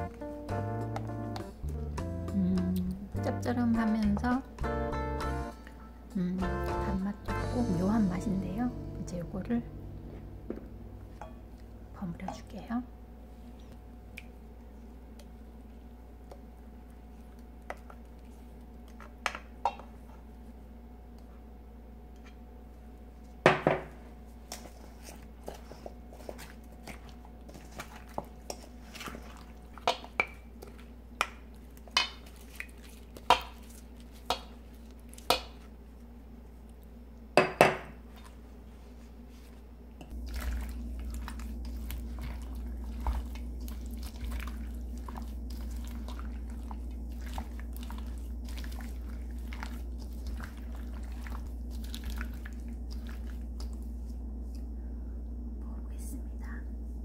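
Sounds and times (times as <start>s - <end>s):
wet squishing: 24.5s - 35.9s, 39.4s - 54.7s.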